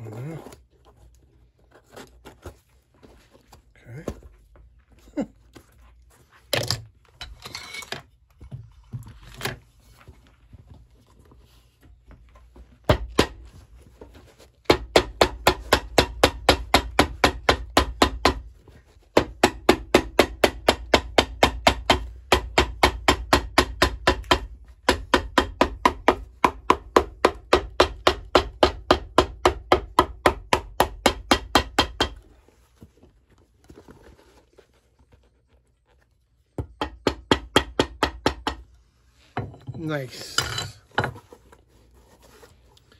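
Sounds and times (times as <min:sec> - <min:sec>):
hammer tapping leather on iron: 0:14.6 - 0:18.5, 0:19.1 - 0:32.4.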